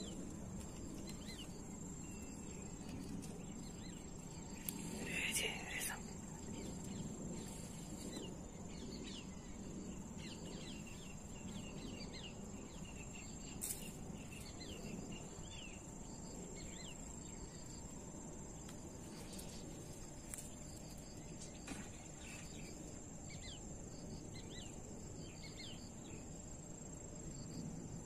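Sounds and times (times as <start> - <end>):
high-pitched insect trill: 0.0 - 28.0
low outdoor hum: 0.0 - 28.0.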